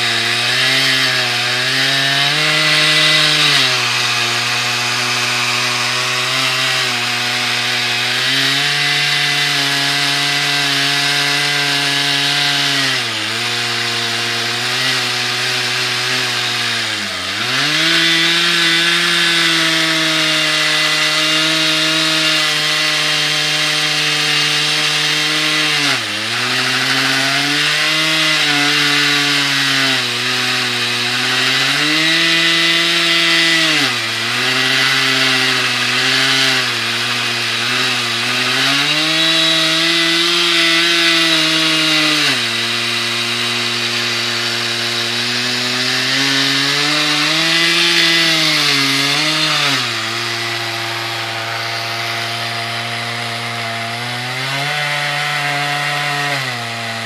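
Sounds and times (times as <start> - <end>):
chainsaw ripping through log: 0.0 - 57.0.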